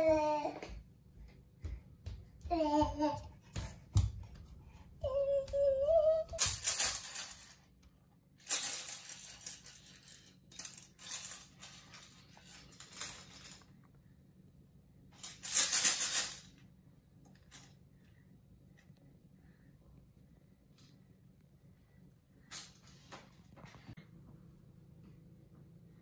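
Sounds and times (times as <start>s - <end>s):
toddler vocal sound: 0.0s - 0.7s, 2.5s - 3.4s, 5.0s - 6.6s
plastic toy rattling: 6.3s - 7.7s.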